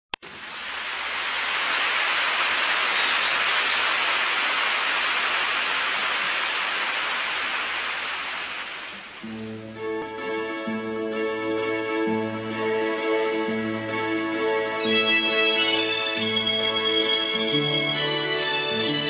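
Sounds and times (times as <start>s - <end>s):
steady rushing hiss: 0.2s - 9.3s.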